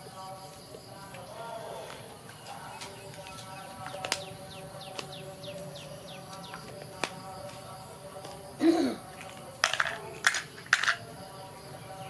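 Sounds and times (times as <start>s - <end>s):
plastic bottles and lids clicking: 9.2s - 11.1s.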